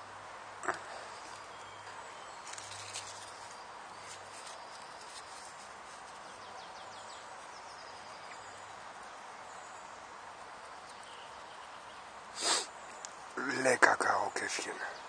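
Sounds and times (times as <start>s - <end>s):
woodland background noise: 0.0s - 15.0s
faint high bird chirps: 0.6s - 5.6s.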